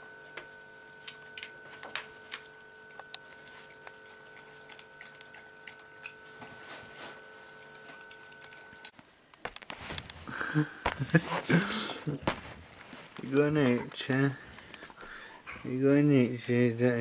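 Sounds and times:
high-pitched hum: 0.0s - 8.9s
dog chewing crunches: 1.1s - 9.0s.

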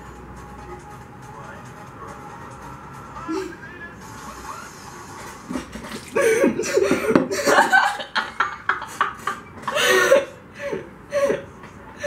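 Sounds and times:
young woman laughing: 6.2s - 11.4s.

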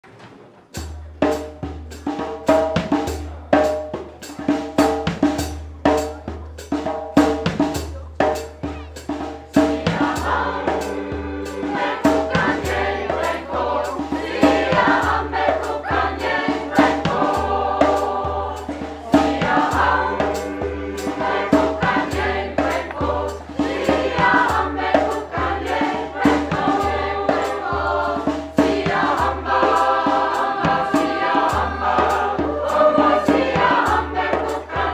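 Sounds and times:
percussion beat: 0.8s - 34.9s
mixed choir singing: 9.5s - 34.9s.

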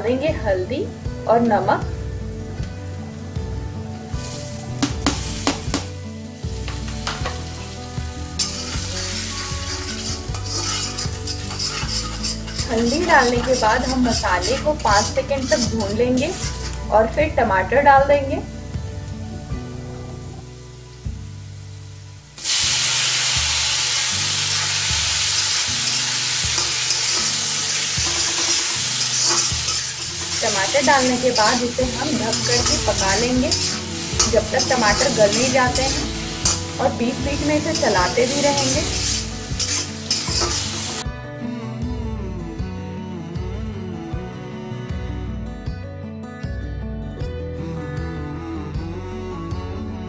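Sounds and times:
food sizzling in hot oil: 3.0s - 17.2s, 18.6s - 41.1s
spatula scraping pan: 8.4s - 16.8s, 25.4s - 41.0s.

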